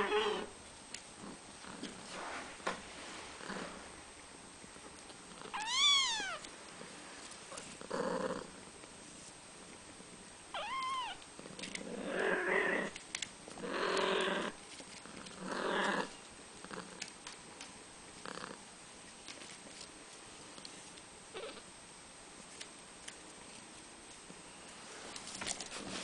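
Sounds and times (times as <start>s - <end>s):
kitten mewing: 5.4s - 6.5s, 10.6s - 11.2s.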